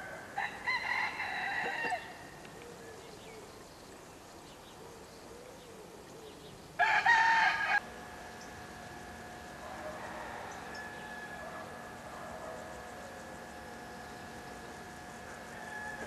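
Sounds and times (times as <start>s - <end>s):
faint outdoor background: 0.0s - 16.0s
faint steady tones: 7.8s - 16.0s.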